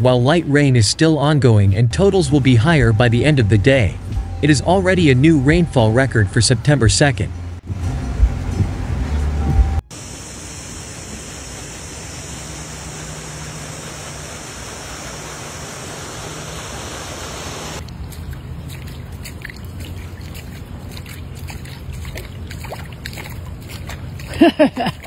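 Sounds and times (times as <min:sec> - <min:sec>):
floodwater rushing: 0:10.0 - 0:25.0
water splashes and taps: 0:17.8 - 0:25.0.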